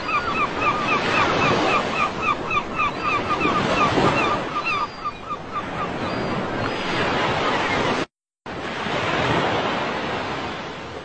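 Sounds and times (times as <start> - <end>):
ocean surf washing ashore: 5.4 - 11.0.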